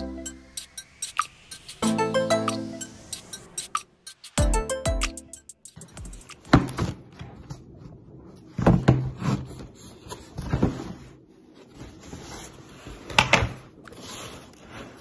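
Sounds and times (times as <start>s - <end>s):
cardboard rustling: 6.4s - 15.0s.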